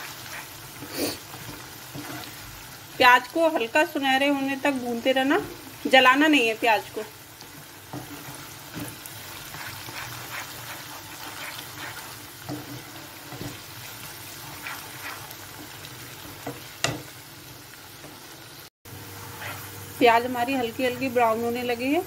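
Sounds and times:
wooden spatula scraping: 0.0 - 2.6, 7.4 - 16.7, 19.2 - 19.7
onions sizzling in hot oil: 0.0 - 22.0.

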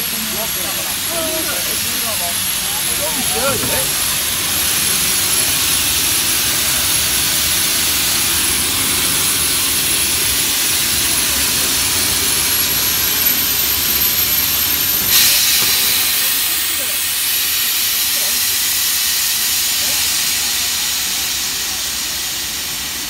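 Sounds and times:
steam locomotive hissing: 0.0 - 23.0.

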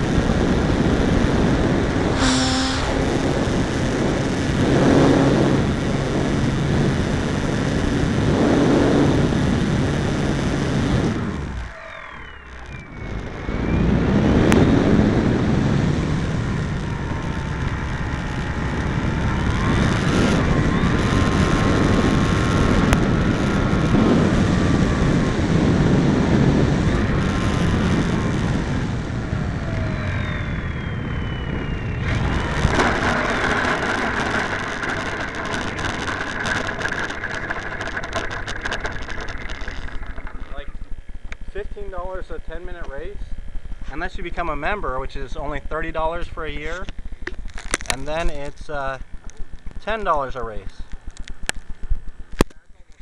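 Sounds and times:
air rushing past microphone: 0.0 - 42.4
electric motor and propeller whining: 0.0 - 52.5
rapid clicks: 32.0 - 41.9.

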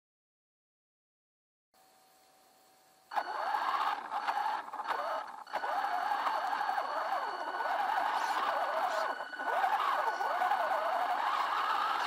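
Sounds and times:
faint steady hum: 1.8 - 12.0
toy truck motor whining: 3.1 - 12.0.

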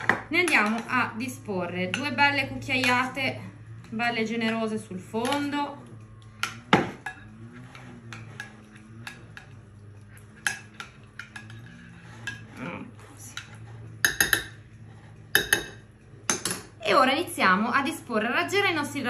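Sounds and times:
spoon stirring thick sauce: 0.0 - 16.8
spoon clinking against glass: 14.0 - 14.6, 15.3 - 16.7.

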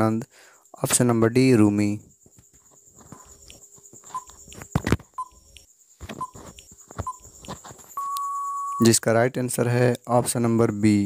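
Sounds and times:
timer clicks: 4.2 - 8.9
brief beeps: 8.0 - 8.9.

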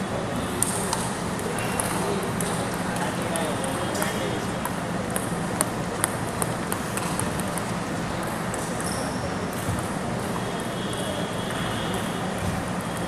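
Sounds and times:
table tennis ball ticking: 1.7 - 9.7.

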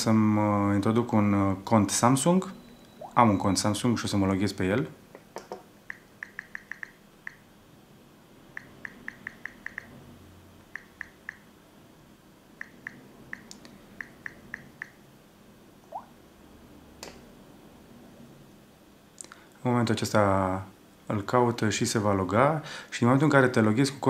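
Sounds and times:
phone keyboard key ticks: 8.6 - 9.9.

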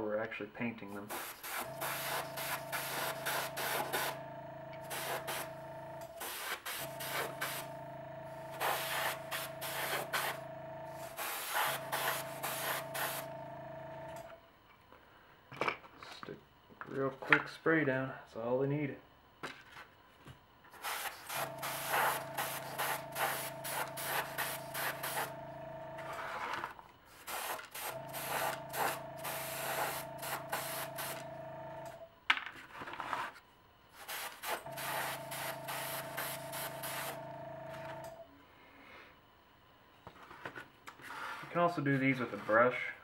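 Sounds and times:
compressor motor hum: 0.9 - 15.1, 20.6 - 32.2, 33.7 - 40.3
airbrush spraying hiss: 1.1 - 4.2, 4.8 - 5.5, 6.2 - 7.7, 8.6 - 13.3, 20.8 - 25.3, 27.2 - 31.2.

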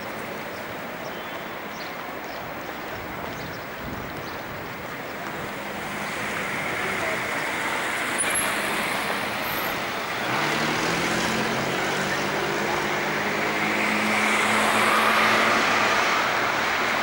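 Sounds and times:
city street traffic: 0.0 - 17.0
vehicle engine humming: 5.2 - 17.0.

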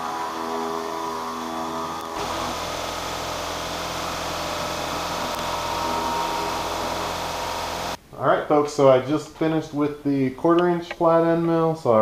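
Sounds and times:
mill cutting aluminium: 0.0 - 8.0.

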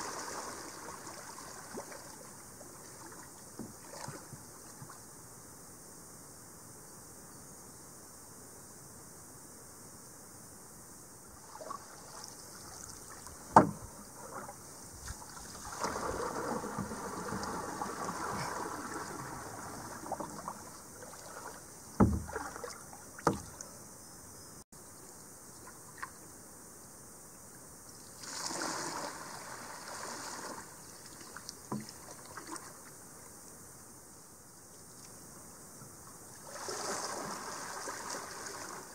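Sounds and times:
paddle splashing water: 0.0 - 5.1, 11.3 - 23.8, 28.1 - 33.2, 35.9 - 38.9
paddle knocks: 13.3 - 15.2, 15.8 - 20.7, 21.3 - 23.6, 31.7 - 32.1.

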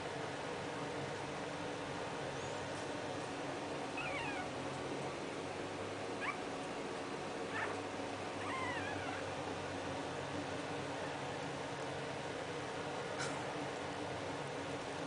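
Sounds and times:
low background hum: 0.0 - 15.0
puppies squeaking: 4.0 - 4.5, 7.5 - 7.8, 8.4 - 9.3.

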